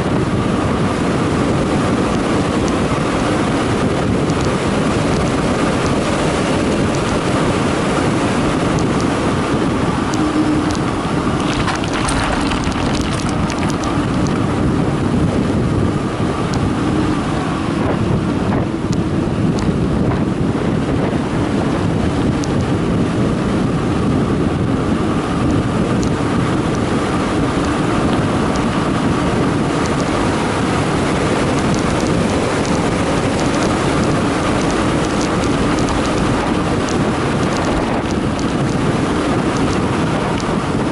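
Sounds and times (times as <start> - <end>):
bicycle tyre noise on concrete: 0.0 - 40.9
wind rushing over microphone: 0.0 - 40.9
light clicks and rattles: 11.4 - 14.4, 34.6 - 38.8.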